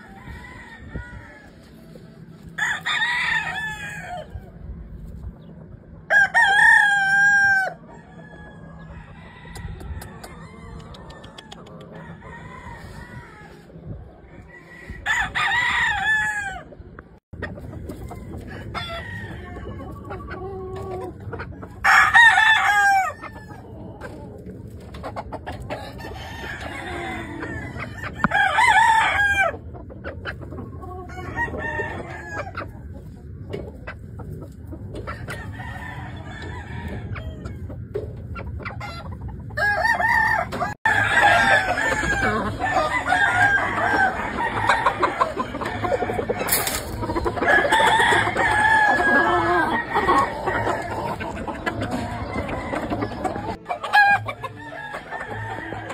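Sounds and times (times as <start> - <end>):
fainter distant rooster crows: 0.0 - 4.6, 6.0 - 16.7, 17.8 - 21.0, 35.2 - 37.7, 39.6 - 51.2
roosters crowing: 0.0 - 4.9, 5.9 - 29.8, 30.7 - 32.9, 35.0 - 38.0, 38.6 - 55.9.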